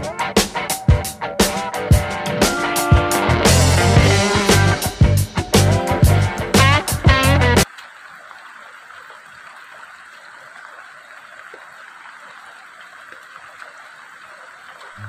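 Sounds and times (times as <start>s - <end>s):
rain falling on grass and leaves: 7.6s - 15.0s.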